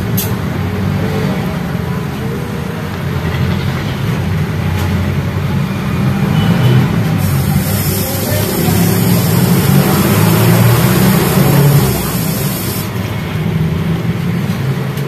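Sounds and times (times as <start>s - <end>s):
pan bubbling and hissing: 7.2s - 12.9s.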